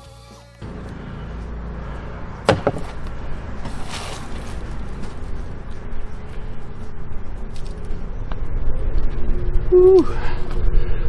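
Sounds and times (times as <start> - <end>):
soil rustling and crackling: 0.8 - 9.8
hands digging in soil: 2.8 - 5.8.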